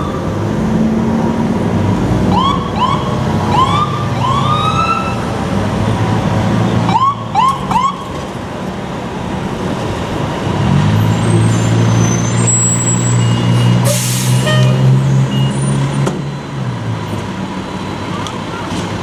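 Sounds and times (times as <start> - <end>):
emergency siren whooping: 2.3 - 5.3, 6.9 - 8.0
air brake hiss: 13.8 - 14.5.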